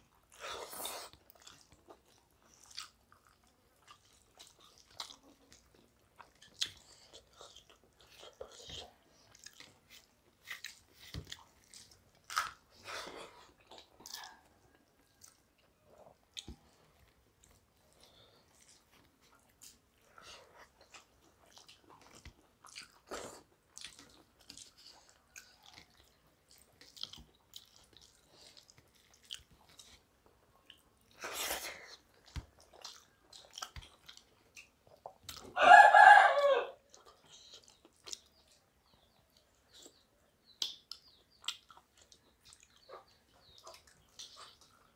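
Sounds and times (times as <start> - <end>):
mouths chewing: 0.1 - 36.3, 36.9 - 44.9.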